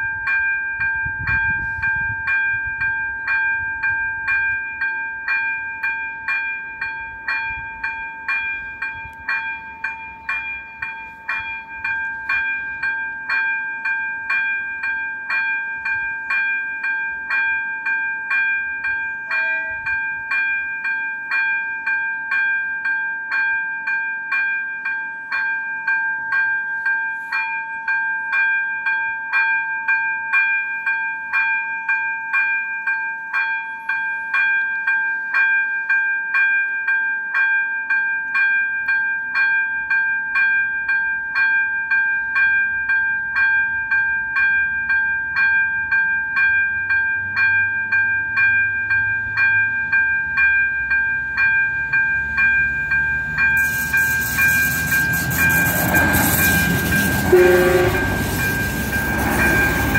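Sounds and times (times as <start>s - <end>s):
diesel railcar rumble: 0.0s - 21.9s, 42.2s - 59.9s
level-crossing warning bell ringing: 0.0s - 59.9s.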